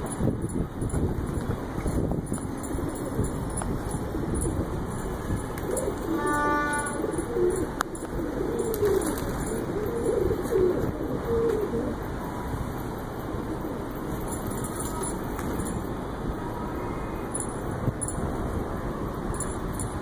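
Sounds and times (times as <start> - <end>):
pigeons cooing: 2.6 - 12.1.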